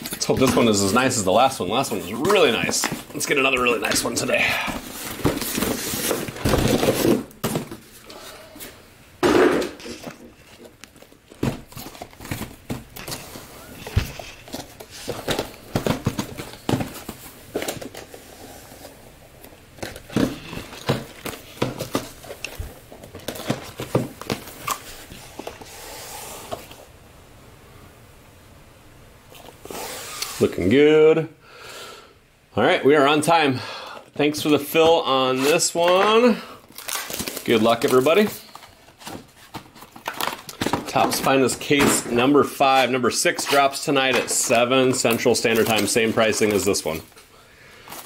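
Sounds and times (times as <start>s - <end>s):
cardboard rustling and scraping: 0.0s - 8.8s, 9.8s - 26.9s, 36.8s - 47.2s.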